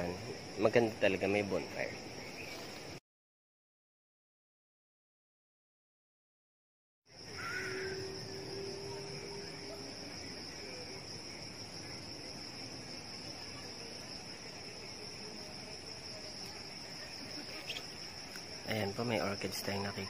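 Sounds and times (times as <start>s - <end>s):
insects trilling: 0.0s - 3.0s, 7.1s - 20.0s.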